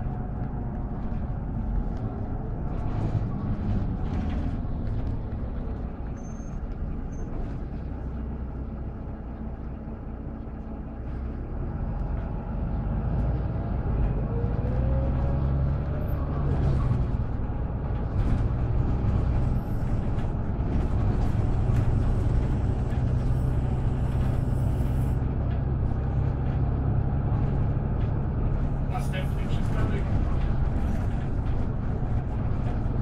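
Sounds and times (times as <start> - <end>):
bus diesel engine rumbling: 0.0 - 33.0.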